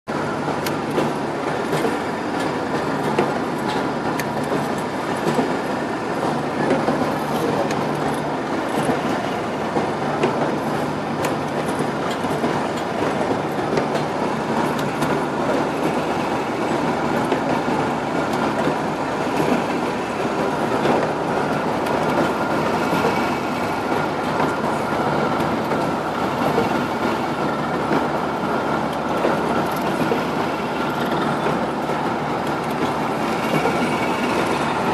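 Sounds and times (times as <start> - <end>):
constant machine hum: 0.1 - 34.9.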